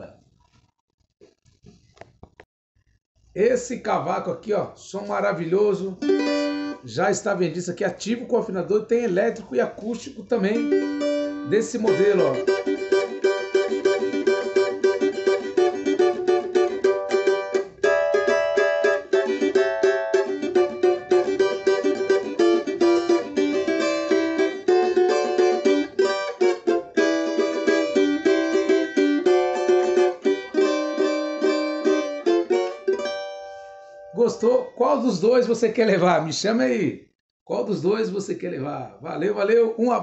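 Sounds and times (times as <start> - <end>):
cavaquinho strummed: 5.0 - 7.3, 9.1 - 35.6.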